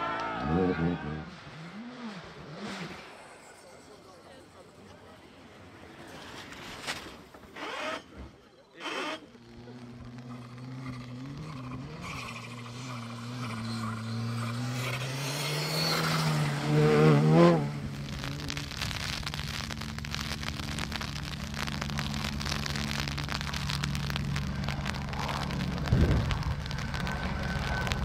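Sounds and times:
low rumble: 16.4 - 28.0.

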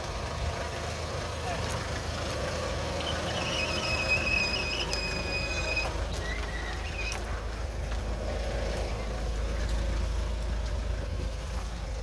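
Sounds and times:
engine rumble: 0.0 - 12.0
high steady squeal: 3.0 - 7.2
short squeaks: 3.0 - 7.2.

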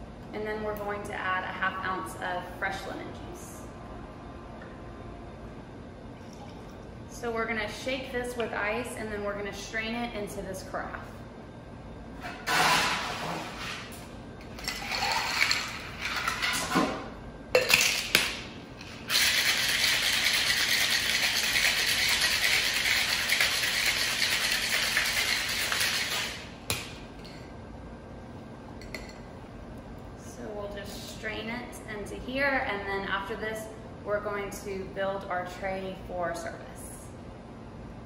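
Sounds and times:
ice rattling in shaker: 14.6 - 16.4, 19.1 - 26.4
ice clattering into shaker: 14.6 - 16.5.

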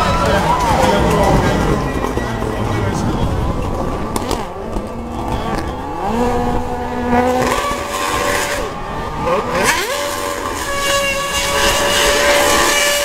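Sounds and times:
racing car engine revving: 0.0 - 13.0.

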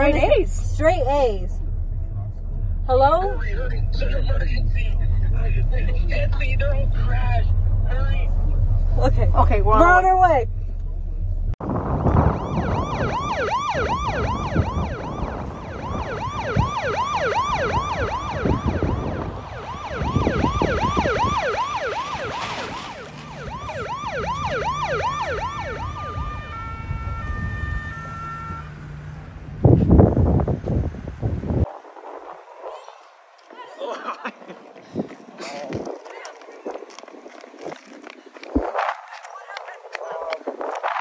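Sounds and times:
car engine and road noise: 0.0 - 41.0
police siren yelping: 12.2 - 29.0.

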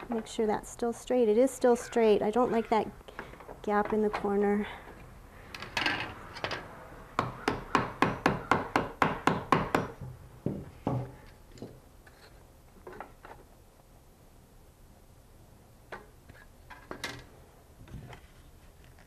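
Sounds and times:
hammer tapping wooden frame: 7.2 - 11.8.

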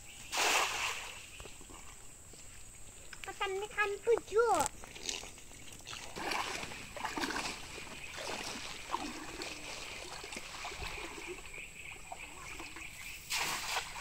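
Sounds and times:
water splashing around wading legs: 4.6 - 11.6, 12.2 - 14.0.

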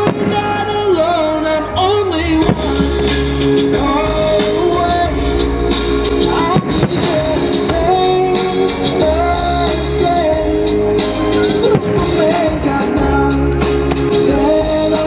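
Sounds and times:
firework bangs: 0.0 - 4.6, 6.3 - 8.5, 11.5 - 13.2
song with singing voice: 0.0 - 15.0.

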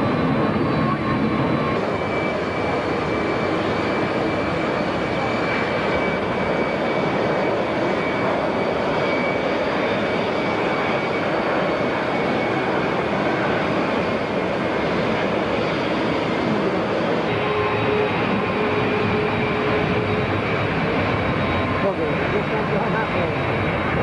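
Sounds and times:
jet engines rushing with high whine: 0.0 - 24.0.

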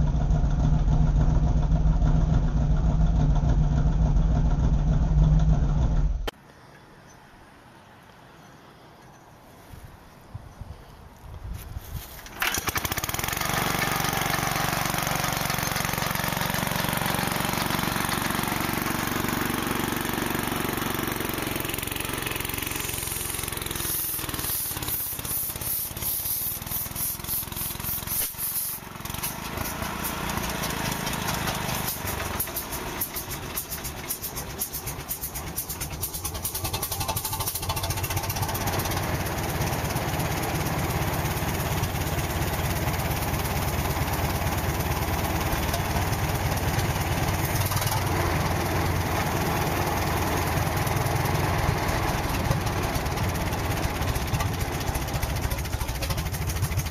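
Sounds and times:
large diesel engine pulsing: 0.0 - 6.3, 12.4 - 56.9
small starting engine running: 12.2 - 56.9.

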